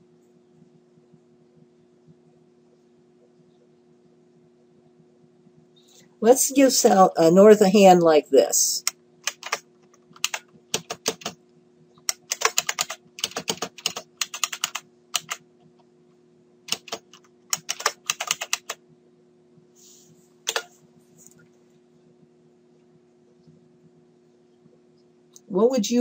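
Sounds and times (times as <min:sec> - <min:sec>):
faint steady hum: 0:00.0 - 0:26.0
typing on computer keyboard: 0:09.2 - 0:11.4, 0:12.1 - 0:15.4, 0:16.7 - 0:18.8, 0:20.5 - 0:20.7.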